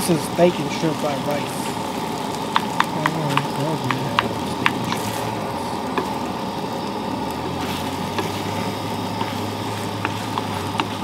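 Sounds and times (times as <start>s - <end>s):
rice sizzling in a frying pan: 0.0s - 11.0s
steady low hum: 0.0s - 11.0s
spatula tapping a pan: 2.5s - 5.2s, 5.9s - 6.4s, 7.4s - 11.0s.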